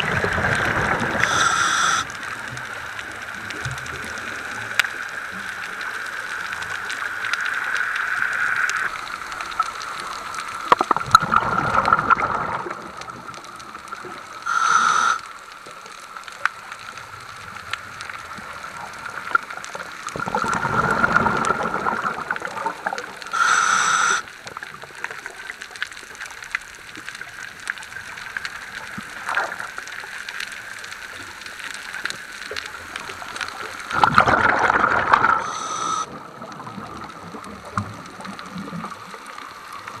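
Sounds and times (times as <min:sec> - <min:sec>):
faint steady whine: 0:00.0 - 0:40.0
hiss of inhalation: 0:01.2 - 0:02.1, 0:14.4 - 0:15.4, 0:23.2 - 0:24.3, 0:35.2 - 0:36.2
bubbling exhalations underwater: 0:10.7 - 0:13.3, 0:20.1 - 0:24.2, 0:33.9 - 0:39.1.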